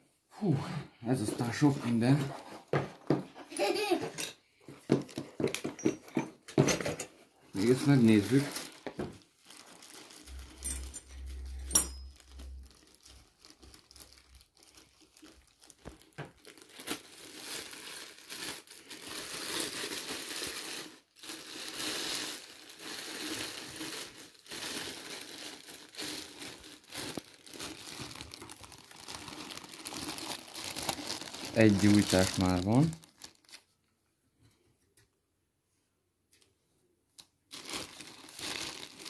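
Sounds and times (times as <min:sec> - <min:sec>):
plastic bag crinkling: 0:07.5 - 0:33.7, 0:37.5 - 0:39.0.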